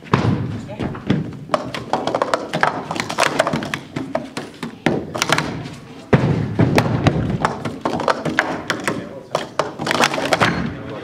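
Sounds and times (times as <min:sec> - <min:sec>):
plastic cups clattering: 0:01.1 - 0:05.8, 0:06.6 - 0:11.0.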